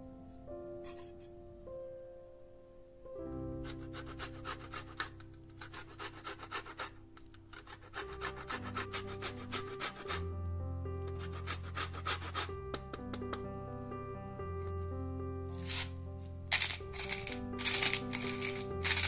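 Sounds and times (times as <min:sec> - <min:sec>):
soft background music: 0:00.0 - 0:19.0
lemon rind grated on metal grater: 0:03.6 - 0:10.3, 0:11.1 - 0:12.5, 0:15.6 - 0:15.9, 0:16.5 - 0:19.0.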